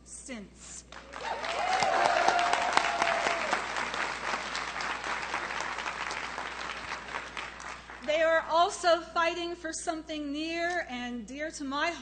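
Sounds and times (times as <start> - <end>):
crowd applause: 1.0 - 8.1.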